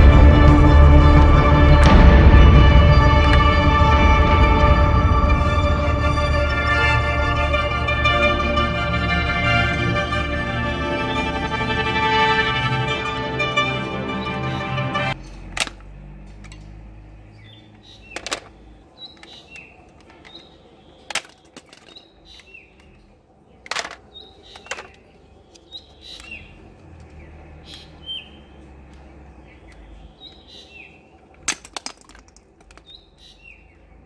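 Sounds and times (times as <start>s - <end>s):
birds chirping: 5.5s - 34.0s
toy gun plastic clicks: 15.5s - 16.7s, 18.2s - 22.9s, 23.6s - 25.0s, 31.3s - 33.0s.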